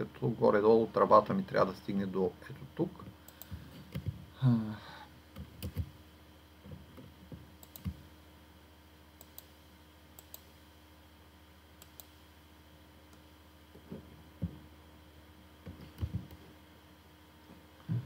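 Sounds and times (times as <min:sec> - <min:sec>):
computer mouse clicking: 0:03.3 - 0:04.1, 0:05.3 - 0:05.9, 0:07.0 - 0:08.0, 0:09.2 - 0:09.6, 0:10.2 - 0:10.5, 0:11.8 - 0:12.2, 0:15.6 - 0:16.4.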